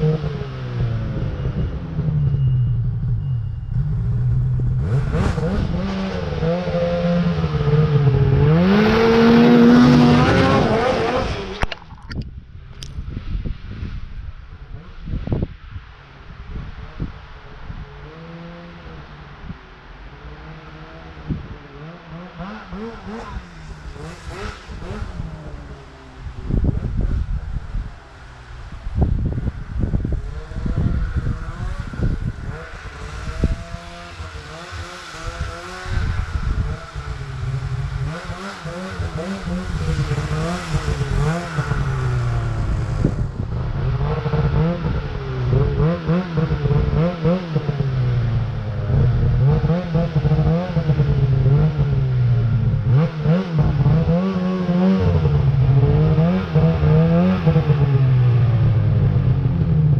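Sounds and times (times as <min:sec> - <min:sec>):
snowmobile engine revving: 0:03.8 - 0:11.7, 0:17.9 - 0:19.1, 0:20.3 - 0:27.1, 0:29.2 - 0:59.9.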